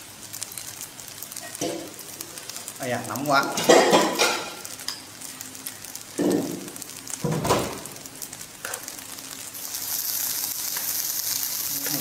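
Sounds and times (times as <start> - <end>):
frying pan sizzling: 0.0 - 12.0.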